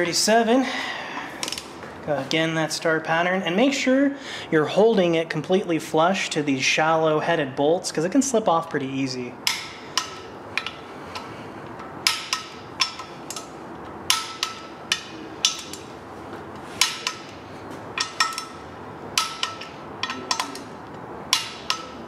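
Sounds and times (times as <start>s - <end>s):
torque wrench clicking: 21.3s - 22.0s.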